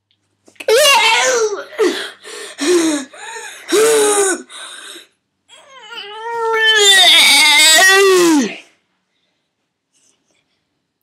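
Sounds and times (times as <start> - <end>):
child crying: 5.5 - 8.6.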